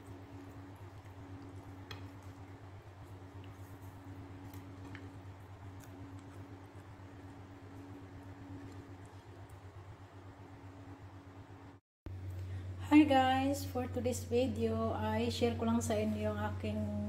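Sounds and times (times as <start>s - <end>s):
raw fish squishing on plate: 0.0s - 9.9s
low hum: 0.0s - 17.0s.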